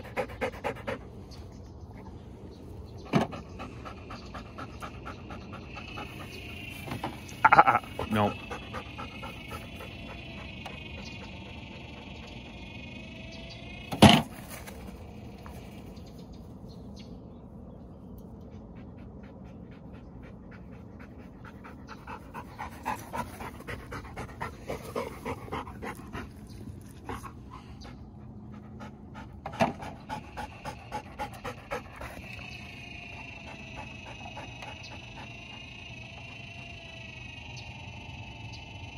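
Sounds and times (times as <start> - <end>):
dog panting: 0.0 - 2.1, 3.0 - 12.4, 18.5 - 35.8.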